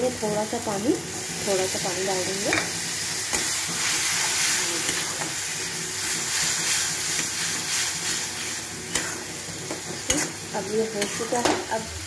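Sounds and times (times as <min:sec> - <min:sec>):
masala sizzling and steaming: 0:00.0 - 0:12.0
spatula scraping a pan: 0:02.5 - 0:11.6.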